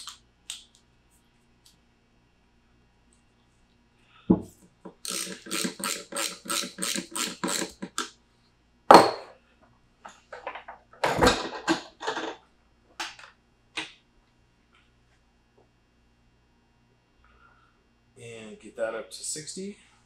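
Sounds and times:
ratchet wrench clicking: 4.9s - 8.1s
tool clatter: 5.0s - 8.1s.

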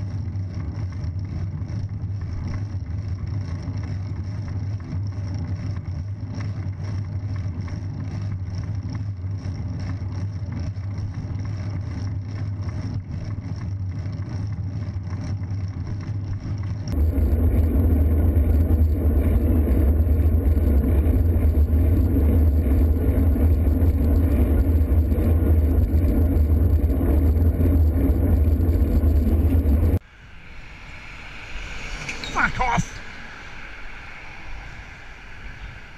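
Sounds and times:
road traffic: 15.0s - 35.9s
wind noise on microphone: 16.8s - 32.4s.

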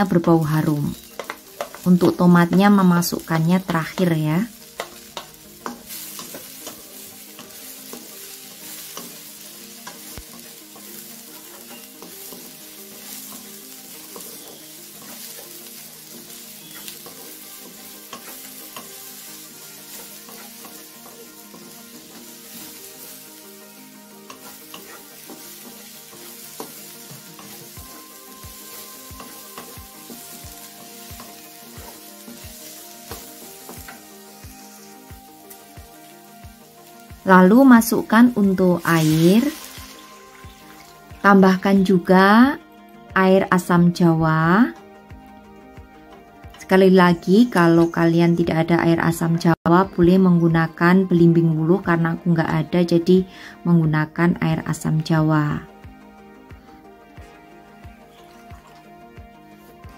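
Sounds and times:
food sizzling in hot oil: 0.0s - 42.6s, 57.6s - 59.9s
spatula scraping wok: 0.1s - 41.3s, 56.6s - 59.9s.

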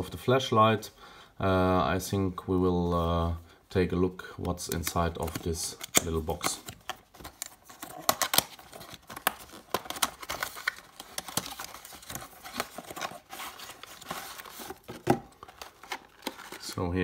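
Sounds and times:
cardboard scraping and rustling: 6.3s - 16.8s.

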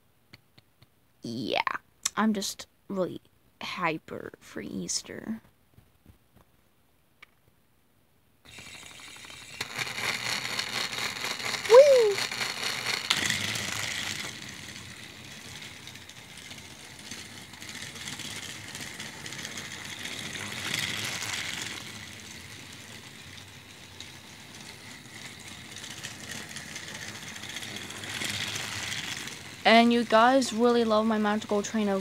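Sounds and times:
toy train motor whirring: 8.5s - 32.0s.

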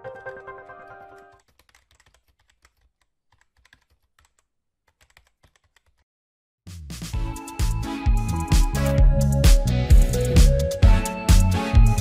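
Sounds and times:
keyboard typing clicks: 1.1s - 6.0s
loud music: 6.7s - 12.0s.

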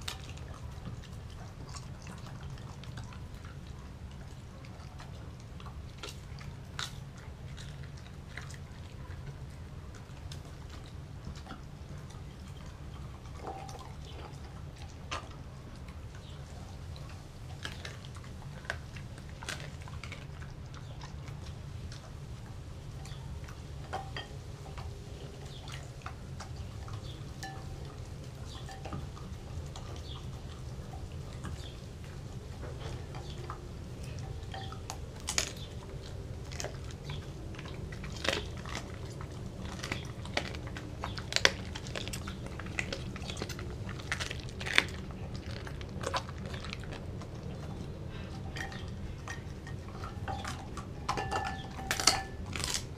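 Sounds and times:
dog chewing food: 0.0s - 52.9s
teeth clinking on glass bowl: 13.0s - 14.4s, 26.5s - 30.2s, 33.1s - 35.7s, 48.2s - 52.8s.

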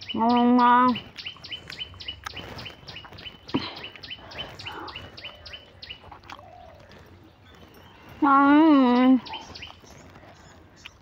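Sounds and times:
bird chirping: 0.0s - 11.0s.

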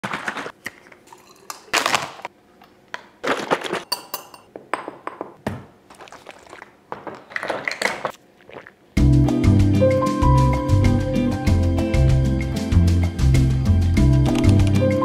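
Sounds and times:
metal spoon clinking on glass: 3.9s - 4.5s.

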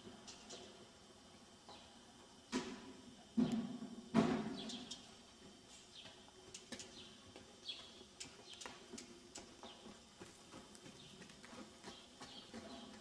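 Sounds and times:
hoofbeats on soft dirt: 5.3s - 13.0s
small birds chirping: 6.8s - 8.8s.

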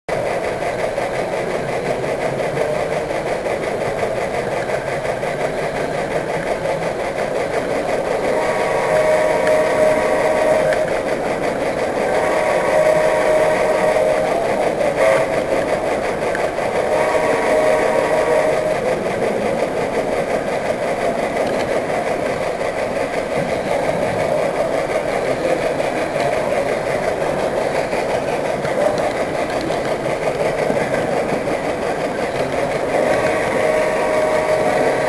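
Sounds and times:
model train running on rails: 0.0s - 35.0s
whining tone: 7.5s - 35.0s.

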